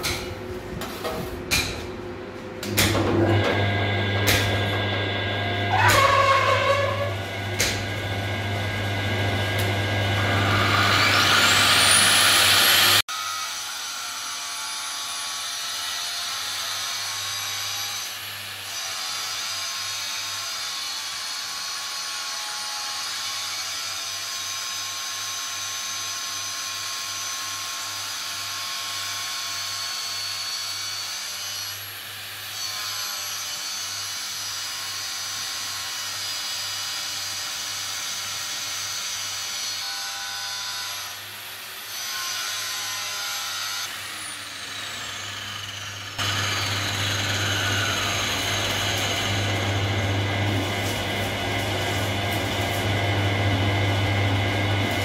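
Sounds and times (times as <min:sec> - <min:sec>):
angle grinder whine: 0:02.7 - 0:13.8, 0:41.1 - 0:55.0
steady metal grinding: 0:03.3 - 0:13.0, 0:42.1 - 0:55.0.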